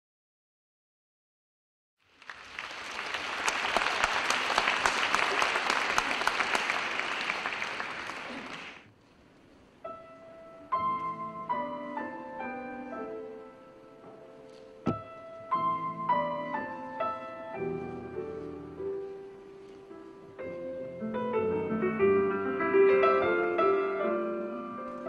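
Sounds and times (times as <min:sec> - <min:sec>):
audience applauding: 0:02.1 - 0:08.9
grand piano playing slow chords: 0:09.8 - 0:25.0.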